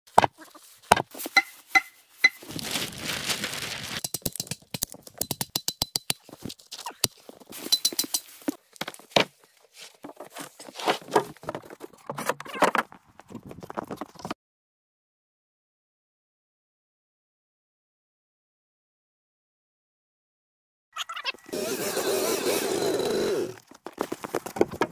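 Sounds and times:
wooden thunks: 0:00.9 - 0:01.1
sharp knocks and clacks: 0:04.0 - 0:06.3
hand tool scraping wood: 0:09.7 - 0:12.7, 0:21.5 - 0:23.6.

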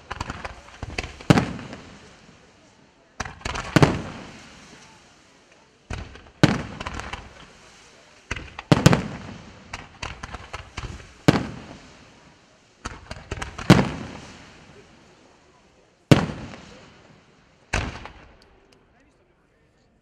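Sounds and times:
firework shells bursting: 0:03.2 - 0:14.9, 0:16.1 - 0:18.9.

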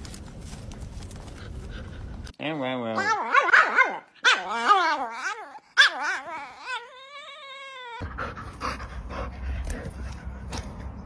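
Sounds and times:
dog whining and yowling: 0:03.0 - 0:08.3.

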